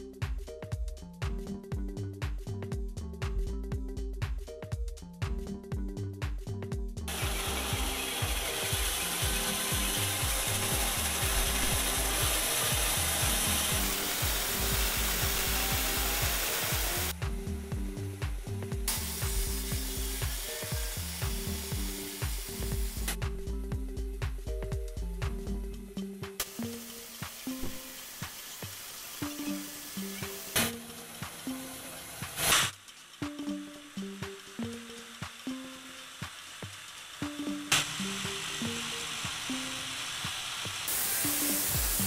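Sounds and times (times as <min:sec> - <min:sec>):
background music with steady beat: 0:00.0 - 0:42.0
band saw cutting wood: 0:07.1 - 0:17.2, 0:18.9 - 0:23.2, 0:26.4 - 0:32.8, 0:34.3 - 0:42.0.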